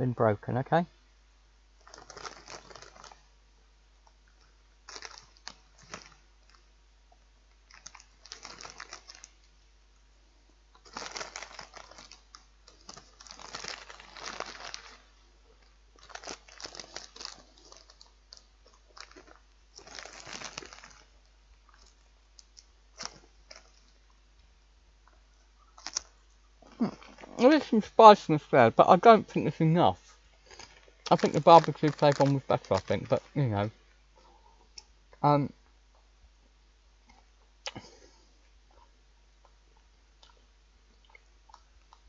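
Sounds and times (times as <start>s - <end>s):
plastic packets crinkling: 1.8s - 3.3s, 4.4s - 6.6s, 7.6s - 9.5s, 10.8s - 24.1s, 25.8s - 27.7s, 30.1s - 33.7s.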